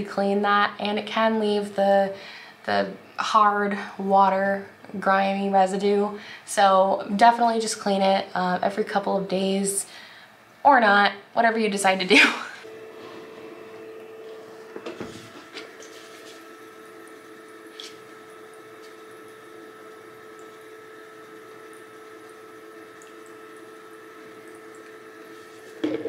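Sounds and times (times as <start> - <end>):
diffuser water burbling: 0.0 - 26.0
steady hum: 11.4 - 26.0.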